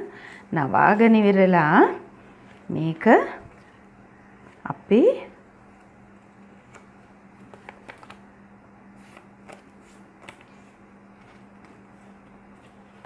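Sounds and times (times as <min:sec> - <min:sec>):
steady low hum: 0:00.0 - 0:13.0
paper crinkling while folded: 0:05.8 - 0:08.2, 0:09.0 - 0:13.0.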